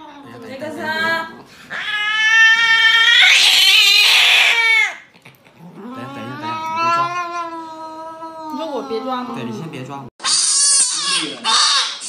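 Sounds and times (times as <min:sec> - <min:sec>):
cat yowling in distress: 0:01.7 - 0:05.0, 0:05.8 - 0:09.4.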